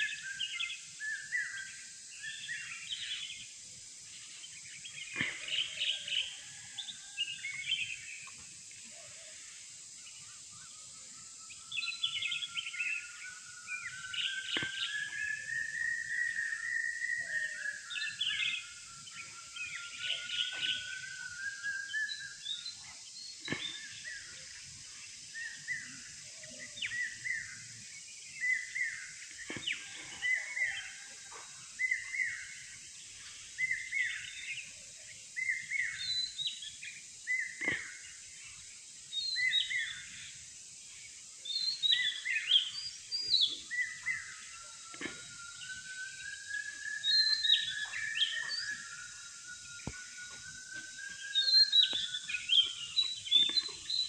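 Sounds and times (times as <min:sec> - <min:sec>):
long wavering birdsong: 0:00.0 - 0:54.0
steady high hiss: 0:00.0 - 0:54.0
high bird chirps: 0:46.4 - 0:54.0.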